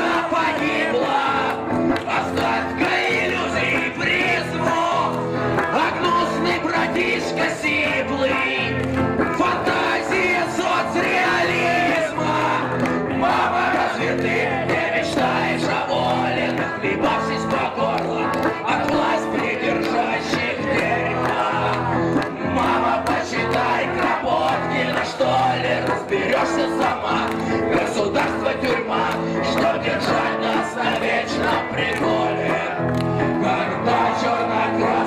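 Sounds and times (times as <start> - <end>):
crowd shouting along: 0.0 - 35.0
electric guitar: 0.0 - 35.0
man shouting lyrics: 2.1 - 8.7, 9.3 - 12.8.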